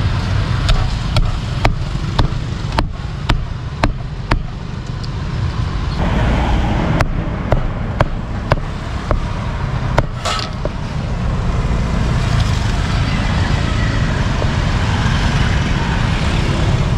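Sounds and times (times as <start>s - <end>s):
street traffic rumble: 0.0s - 16.9s
knife chopping meat: 0.7s - 4.5s.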